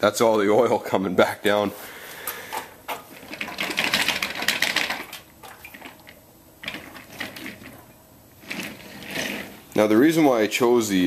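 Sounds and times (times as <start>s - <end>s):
oil gurgling in radiator heater: 2.9s - 9.9s.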